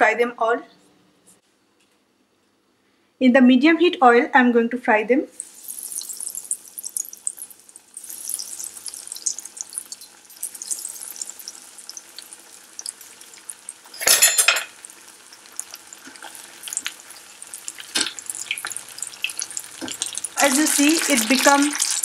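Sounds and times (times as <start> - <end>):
deep-frying oil sizzling: 5.3 - 22.0.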